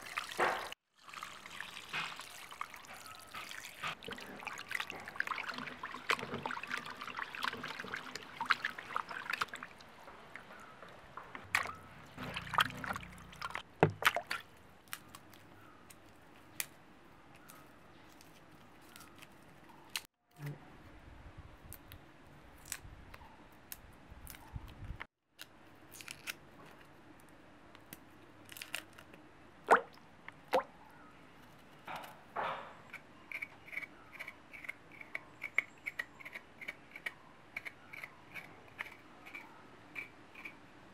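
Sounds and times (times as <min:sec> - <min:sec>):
water splashing and dripping: 0:00.0 - 0:14.5, 0:29.7 - 0:30.7
knife clicking and scraping: 0:32.8 - 0:40.6.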